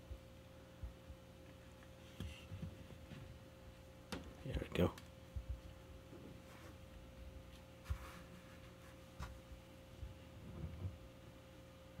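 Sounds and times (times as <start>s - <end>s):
faint steady hum: 0.0s - 12.0s
rustle of cotton gloves: 6.4s - 9.6s.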